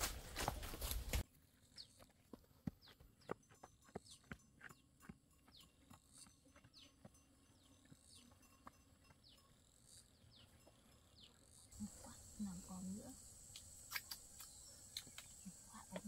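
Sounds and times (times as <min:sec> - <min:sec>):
insect drone: 0:05.7 - 0:16.0.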